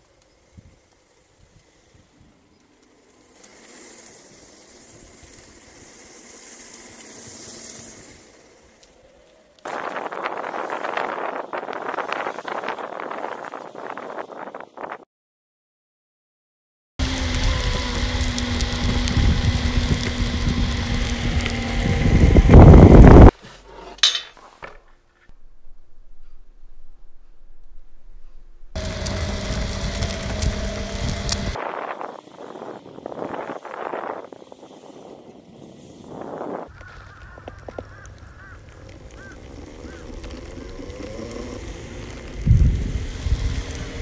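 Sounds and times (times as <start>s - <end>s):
faint electric motor tones: 0.0s - 9.7s, 17.0s - 23.3s, 28.7s - 44.0s
wheels rolling on pavement: 0.0s - 14.7s, 17.0s - 25.3s, 28.7s - 44.0s.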